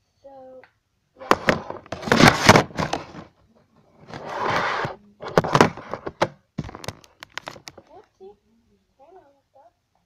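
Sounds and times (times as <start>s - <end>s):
rubbing noise: 1.2s - 3.3s, 4.0s - 6.3s.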